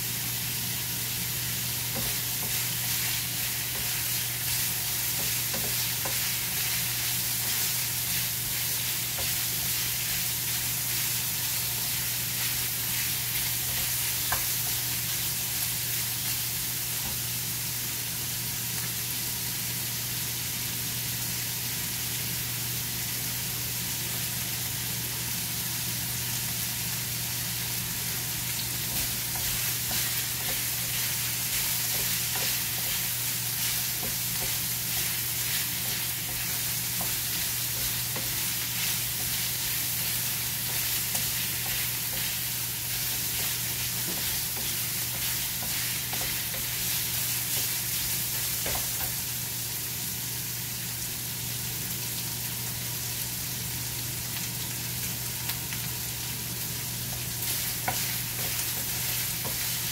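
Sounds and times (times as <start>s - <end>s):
meat sizzling in a frying pan: 0.0s - 59.9s
spatula ticks and scrapes: 1.9s - 14.8s, 28.8s - 49.2s, 57.1s - 59.9s.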